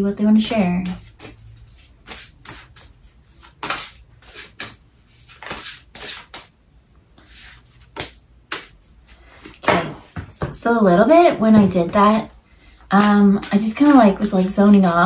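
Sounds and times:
cards shuffled by hand: 2.0 - 6.5.

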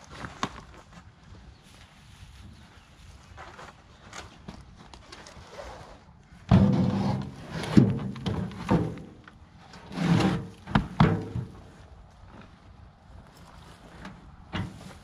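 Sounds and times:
loose compost rustling: 6.3 - 15.0
bucket knocking on wheelbarrow: 6.5 - 9.2, 10.7 - 11.6.

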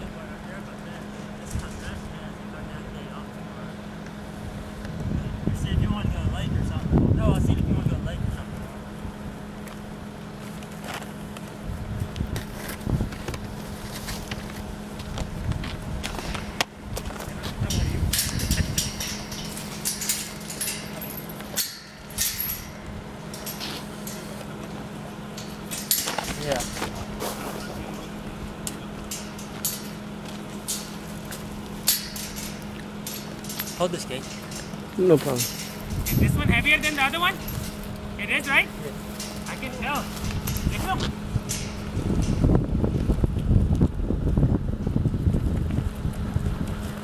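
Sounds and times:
handling rumble: 0.0 - 47.0
steady low hum: 0.0 - 47.0
wind on microphone: 4.4 - 9.3, 11.6 - 13.6, 14.7 - 19.4, 35.8 - 38.2, 40.1 - 47.0.

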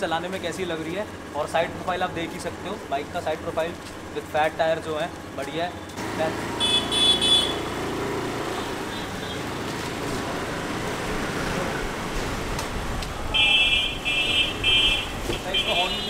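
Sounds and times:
road traffic noise: 0.0 - 16.0
electronic horn beeping: 5.8 - 7.8, 13.4 - 16.0.

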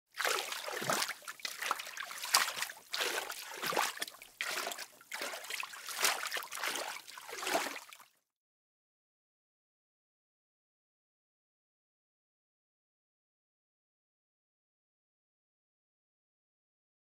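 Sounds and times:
water splashing in a pool: 0.1 - 8.2.

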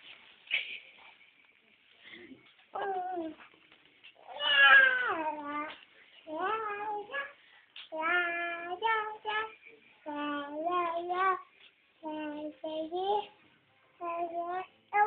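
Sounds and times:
child singing: 2.8 - 3.4, 4.8 - 13.4, 14.0 - 15.0.

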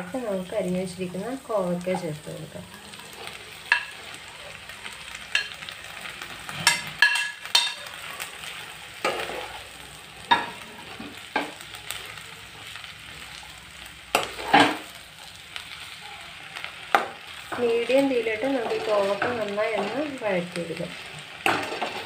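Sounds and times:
vegetables sizzling in hot oil: 0.0 - 22.0
spoon scraping and knocking pan: 3.2 - 4.1, 6.5 - 7.9, 9.0 - 9.6, 10.3 - 11.6, 14.1 - 14.9, 16.9 - 22.0.

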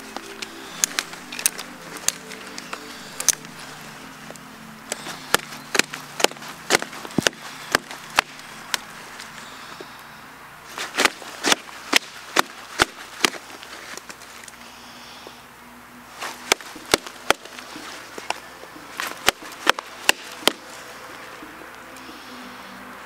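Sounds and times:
chopping blows on wood: 4.9 - 8.9, 10.8 - 13.4, 16.2 - 17.6, 19.0 - 20.7.

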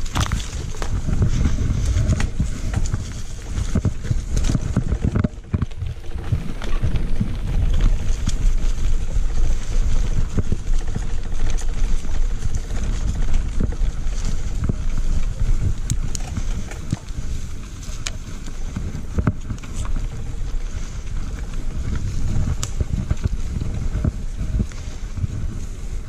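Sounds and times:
bike rattling over bumps: 0.0 - 26.0
bike tyres rumbling on dirt: 0.0 - 26.0
wind buffeting microphone: 0.0 - 26.0.

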